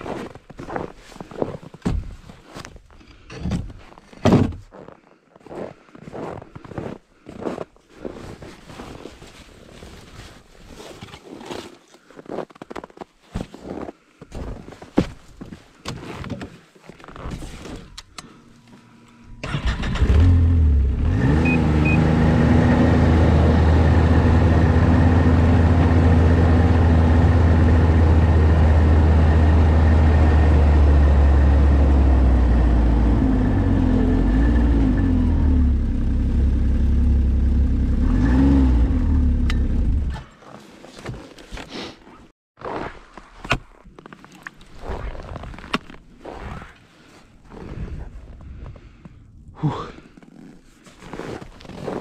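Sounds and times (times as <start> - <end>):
snowmobile engine revving: 19.4 - 40.1.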